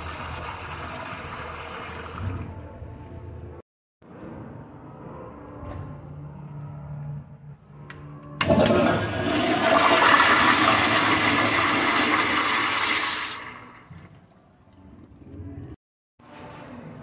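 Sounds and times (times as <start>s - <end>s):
toilet flushing: 0.0s - 2.7s, 8.4s - 15.5s.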